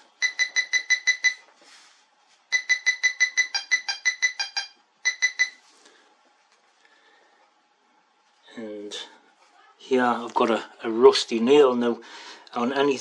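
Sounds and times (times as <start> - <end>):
pinpointer beeping rapidly: 0.2 - 1.4, 2.5 - 5.6.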